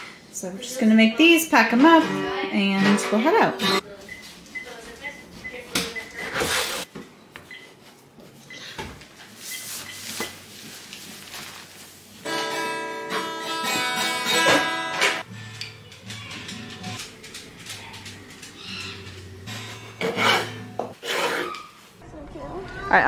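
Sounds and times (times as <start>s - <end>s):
acoustic guitar plucked notes: 1.7s - 3.8s, 12.3s - 17.0s, 19.4s - 20.9s
acoustic guitar strummed chords: 2.0s - 3.8s, 12.3s - 17.1s, 19.4s - 20.9s.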